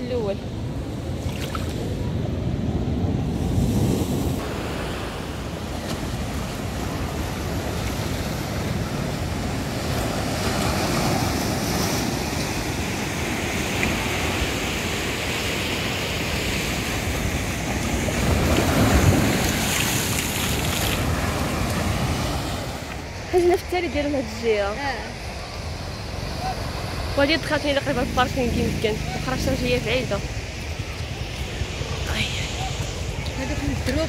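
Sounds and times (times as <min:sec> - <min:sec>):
wave crashing and spraying: 0:00.0 - 0:34.0
surf washing over rocks: 0:01.0 - 0:34.0.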